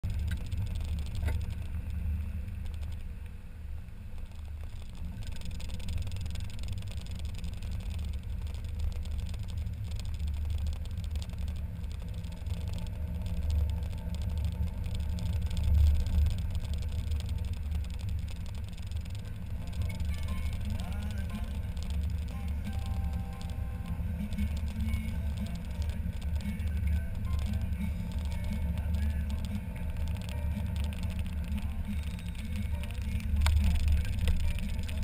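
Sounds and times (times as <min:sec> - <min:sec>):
car engine and road noise: 0:00.0 - 0:35.0.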